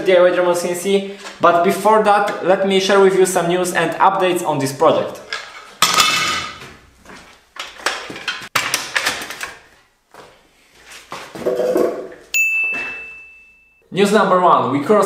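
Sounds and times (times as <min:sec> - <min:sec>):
bright steady ding: 0:12.3 - 0:13.9.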